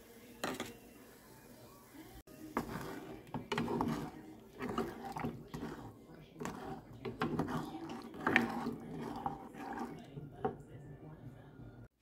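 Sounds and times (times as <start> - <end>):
spoon scraping saucepan: 2.4 - 11.9.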